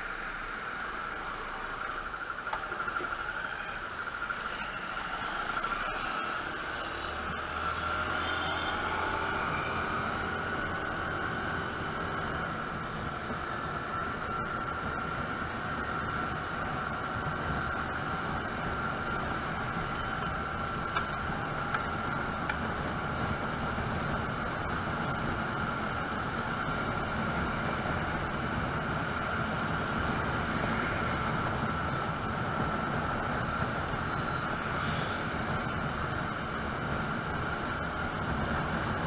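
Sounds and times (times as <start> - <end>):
steady whine: 0.0 - 39.0
scooter riding noise: 1.1 - 39.0.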